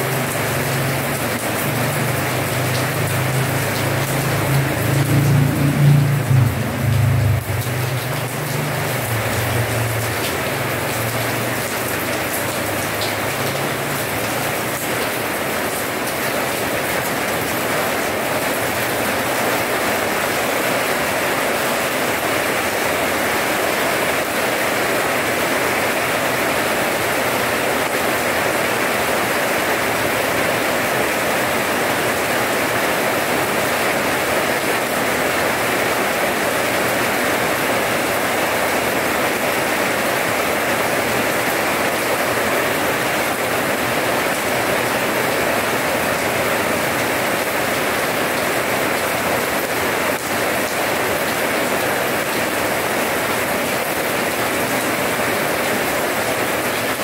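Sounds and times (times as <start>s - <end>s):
rain on paving: 0.0s - 57.0s.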